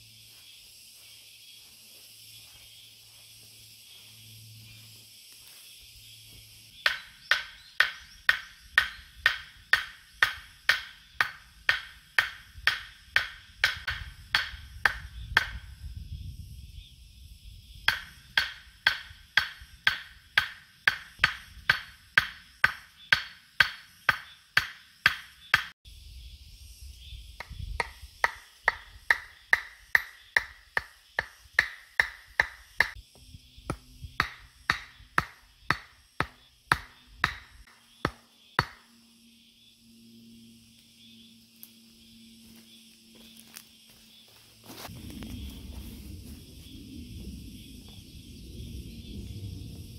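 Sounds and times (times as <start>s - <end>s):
hatchet hammering wooden stake: 6.8s - 15.7s, 17.9s - 25.8s, 27.4s - 33.0s, 33.6s - 38.9s.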